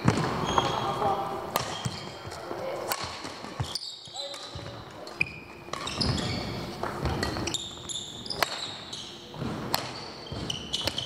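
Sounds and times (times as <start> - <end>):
sneaker squeaks: 0.0 - 2.5, 3.4 - 11.0
racket hitting shuttlecock: 1.5 - 2.1, 8.3 - 8.8, 9.4 - 11.0.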